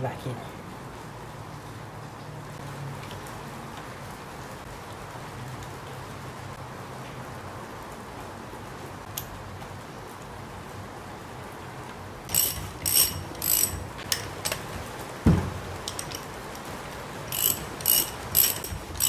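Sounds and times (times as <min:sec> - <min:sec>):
ratchet wrench clicking: 0:12.3 - 0:14.7, 0:15.8 - 0:16.3, 0:17.3 - 0:19.0
loud knock: 0:15.2 - 0:15.6.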